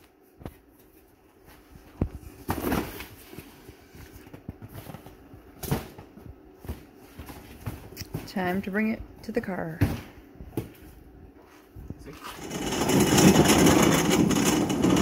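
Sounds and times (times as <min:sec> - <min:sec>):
knocks of handled boxes: 0:04.2 - 0:08.5.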